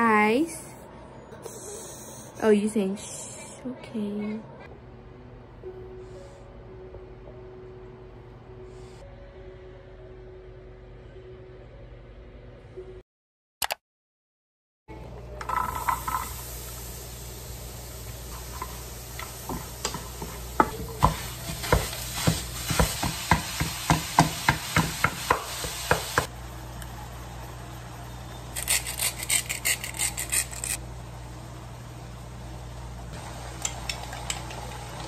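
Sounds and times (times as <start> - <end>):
food sizzling in a frying pan: 15.5 - 26.3
wooden spatula scraping a pan: 19.9 - 23.1
seasoning shaker rattling: 28.6 - 30.8.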